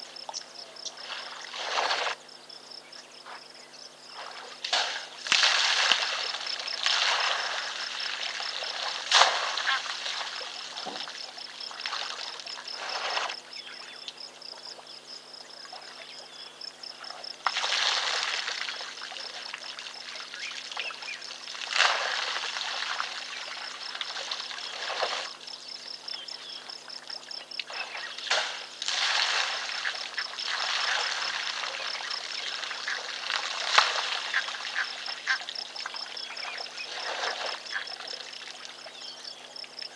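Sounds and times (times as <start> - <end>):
water splashing and pouring: 1.0 - 2.2, 4.2 - 13.4, 17.4 - 25.5, 27.6 - 38.9.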